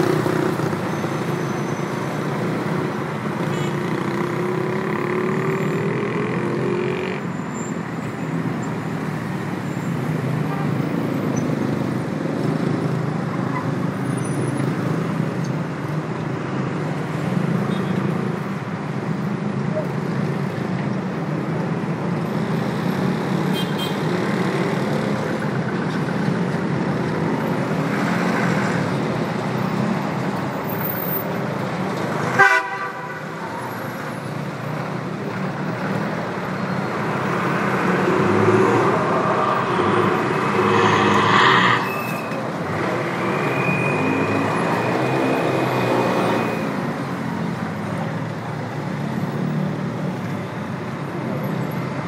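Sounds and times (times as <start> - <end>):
traffic passing: 0.0 - 52.0
car horns: 32.4 - 33.3.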